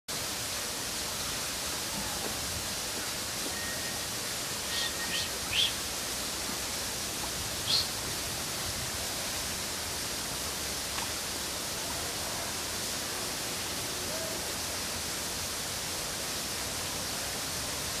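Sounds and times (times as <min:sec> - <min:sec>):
forest ambience hiss: 0:00.1 - 0:18.0
short high-pitched chirps: 0:03.5 - 0:05.8.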